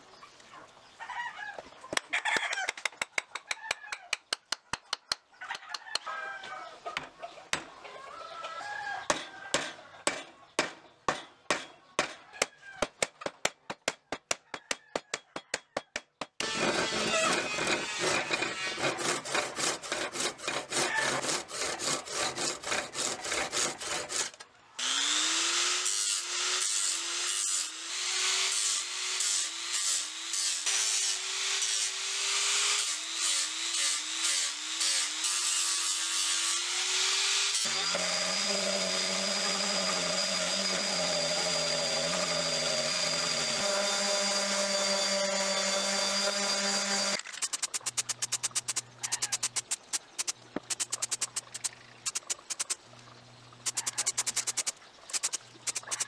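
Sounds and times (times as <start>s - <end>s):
file rasping on steel: 14.3s - 24.4s, 32.6s - 36.9s, 53.7s - 56.0s
orbital sander on wood: 24.8s - 47.2s
rotary polisher whining: 36.7s - 47.2s.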